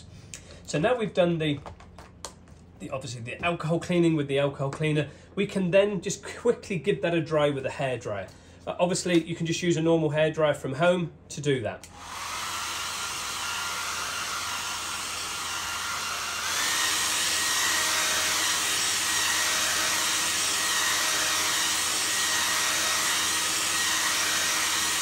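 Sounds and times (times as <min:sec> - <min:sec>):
hair dryer blowing: 0:11.9 - 0:25.0.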